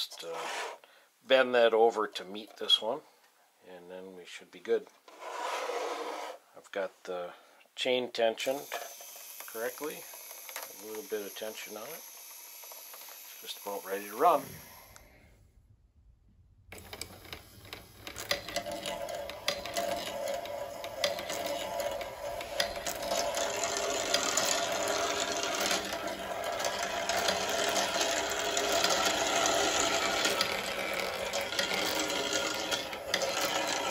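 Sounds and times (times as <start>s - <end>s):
small electric motor: 8.5s - 15.1s, 16.8s - 33.9s
steel balls rolling in plastic track: 16.7s - 33.9s
marble lift clattering: 16.8s - 33.9s.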